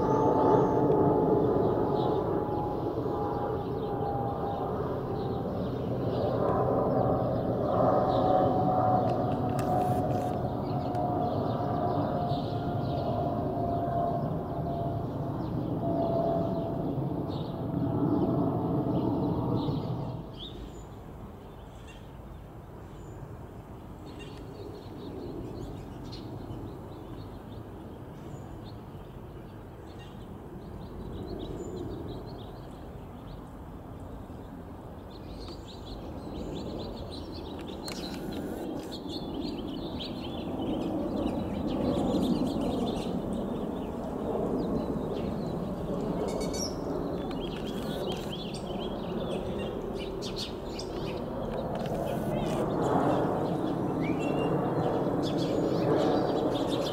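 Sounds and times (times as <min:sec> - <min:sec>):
distant jet engine rumble: 0:00.0 - 0:56.9
small birds chirping: 0:34.4 - 0:56.9.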